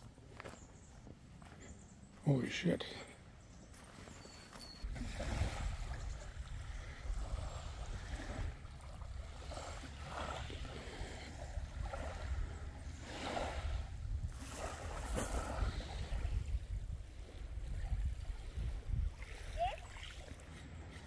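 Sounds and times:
small waves lapping: 0:03.8 - 0:21.0
wind buffeting microphone: 0:04.8 - 0:20.3.

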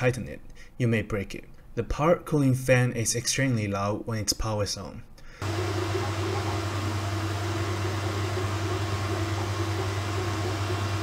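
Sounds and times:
cooling fan whirring: 0:05.3 - 0:11.0.

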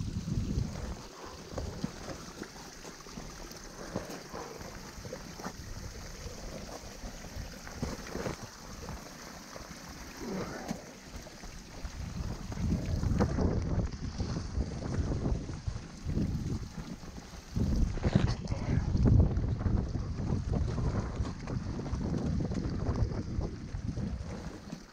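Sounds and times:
wind buffeting microphone: 0:00.0 - 0:02.4, 0:11.4 - 0:24.9
hands and boots scraping rock: 0:00.8 - 0:05.6, 0:06.3 - 0:13.4.

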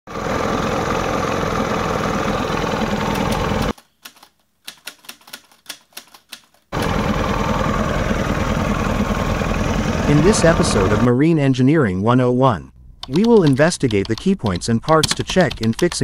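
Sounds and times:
outboard engine running: 0:00.1 - 0:03.7, 0:06.8 - 0:11.1
sharp clicks: 0:03.1 - 0:06.9, 0:12.8 - 0:16.0.

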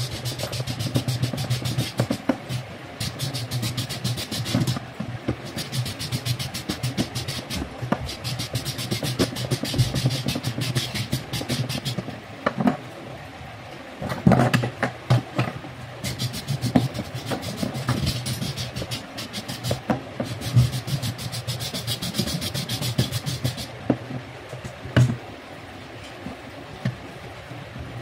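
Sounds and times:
hacksaw cutting plastic: 0:00.0 - 0:04.8, 0:05.4 - 0:12.0, 0:16.0 - 0:23.7.

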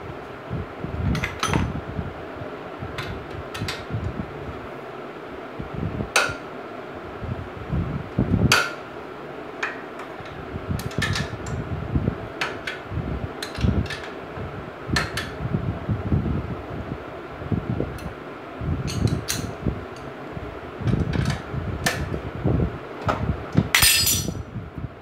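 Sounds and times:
loud ringing metal clanks: 0:23.8 - 0:24.4.

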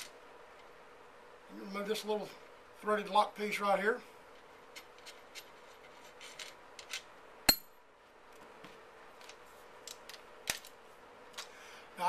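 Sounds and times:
ringing metal clink: 0:07.5 - 0:07.8.

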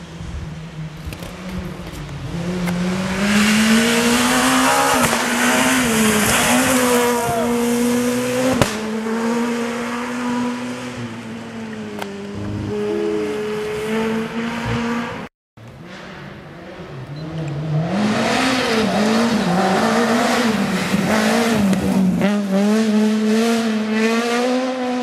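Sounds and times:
rally car engine passing: 0:00.8 - 0:25.0
sharp crack: 0:04.7 - 0:06.8.

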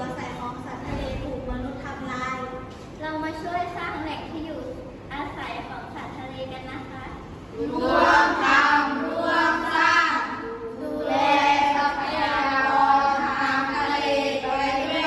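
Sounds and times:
children chanting in unison: 0:07.6 - 0:15.0.

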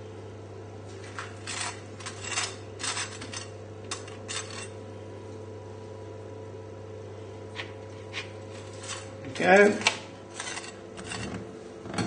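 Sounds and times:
steady low hum: 0:00.0 - 0:12.0
knife scraping toasted bread: 0:01.4 - 0:04.8, 0:08.0 - 0:09.2, 0:10.3 - 0:11.4.

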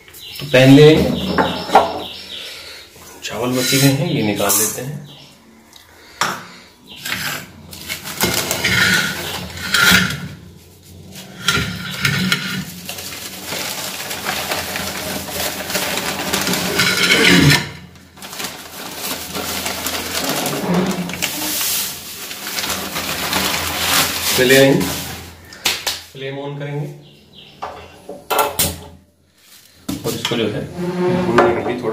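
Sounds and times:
newspaper rustling and scraping: 0:07.0 - 0:25.5.

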